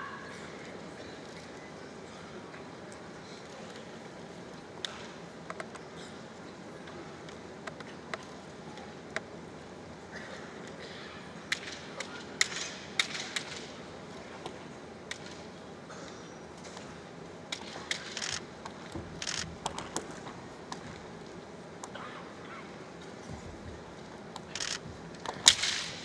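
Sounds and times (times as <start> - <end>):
bamboo swords clacking together: 11.5 - 13.7, 25.3 - 26.0.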